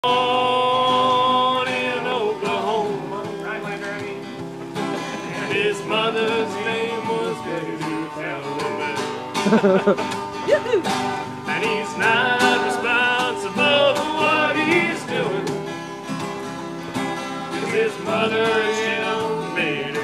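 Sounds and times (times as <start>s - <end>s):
acoustic guitars playing: 0.0s - 20.0s
person singing: 5.1s - 10.9s.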